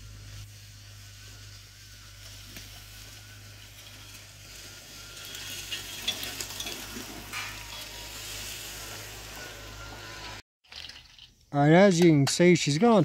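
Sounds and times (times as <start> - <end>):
tracks pushing through tall grass: 0.0 - 10.0.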